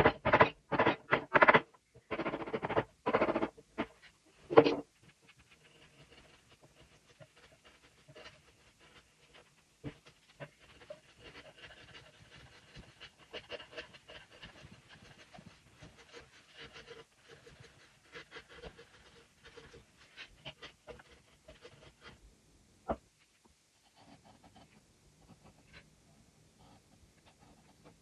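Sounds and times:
chisel scraping wood: 0:00.0 - 0:22.2.

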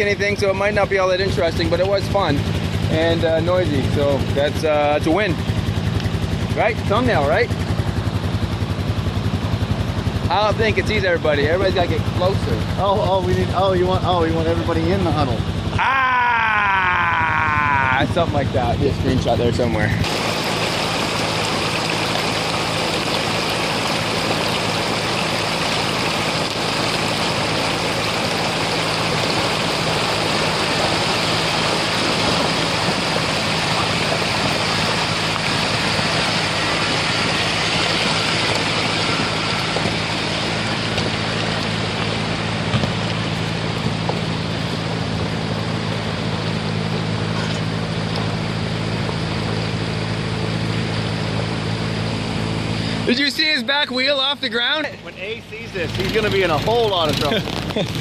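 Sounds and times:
vehicle engine hum: 0:00.0 - 0:58.0
water rushing over rocks: 0:19.0 - 0:50.9.

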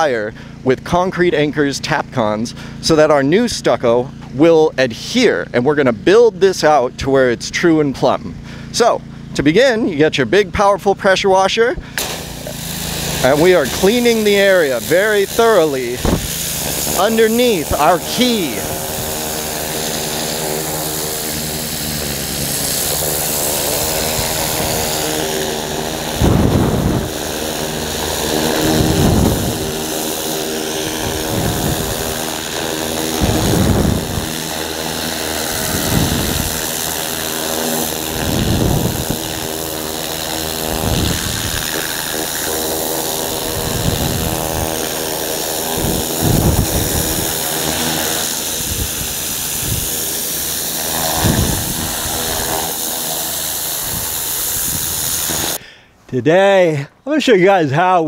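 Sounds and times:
pressure washer spraying: 0:11.8 - 0:55.8.

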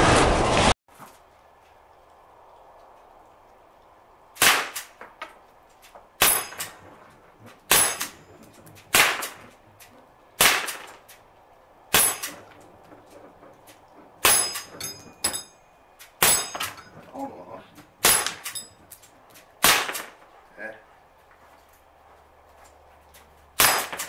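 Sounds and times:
air gun shots: 0:04.4 - 0:05.0, 0:08.9 - 0:09.4, 0:10.4 - 0:11.0, 0:19.6 - 0:20.2, 0:23.6 - 0:24.0.

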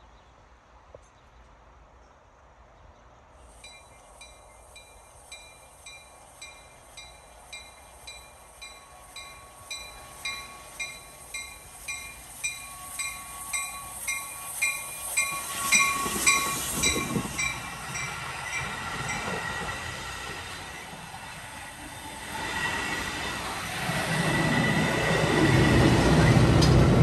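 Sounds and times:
train engine and wheel noise: 0:00.0 - 0:27.0
locomotive bell ringing: 0:03.6 - 0:19.9.

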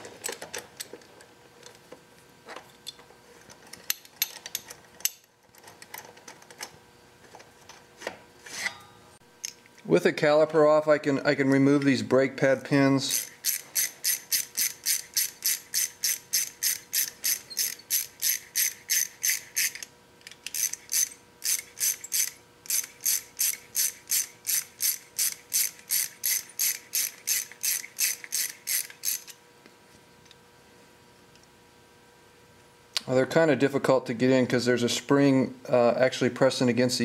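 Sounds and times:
hand ratchet clicking: 0:13.1 - 0:29.4.

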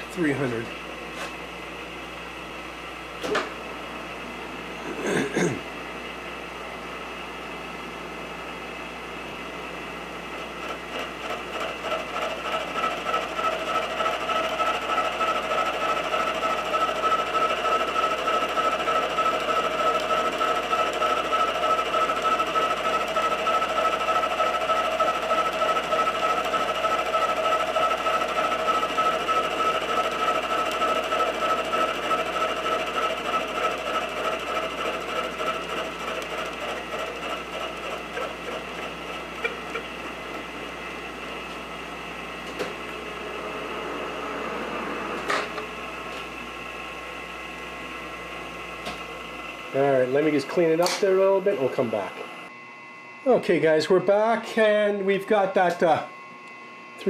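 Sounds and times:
milling machine spindle running: 0:00.0 - 0:04.9, 0:06.0 - 0:52.6
end mill cutting steel: 0:09.4 - 0:51.7.

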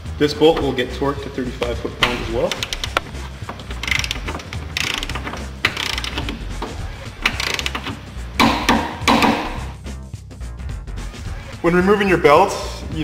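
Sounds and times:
ratchet wrench clicking: 0:02.1 - 0:09.6.

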